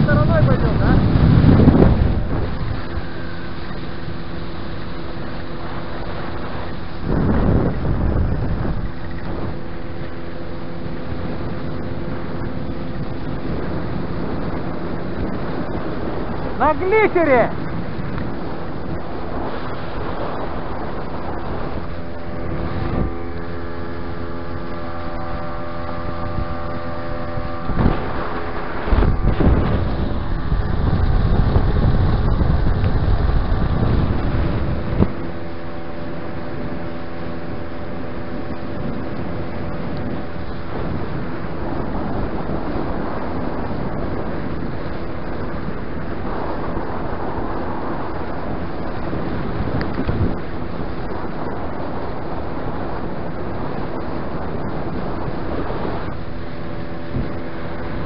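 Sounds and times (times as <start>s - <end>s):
outboard motor running: 0.0s - 58.0s
water rushing past hull: 0.0s - 58.0s
wind buffeting microphone: 0.0s - 58.0s.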